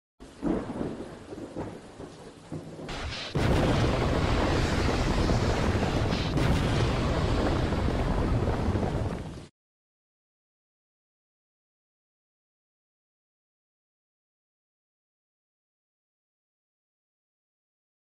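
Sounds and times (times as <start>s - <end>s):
heavy rushing rain: 0.2s - 9.5s
thunder rumbling: 0.2s - 9.5s
loud thunder clap: 0.4s - 9.5s.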